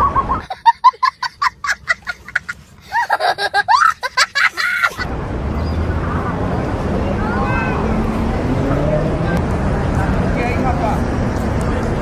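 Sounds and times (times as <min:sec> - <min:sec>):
child laughing: 0:00.4 - 0:05.0.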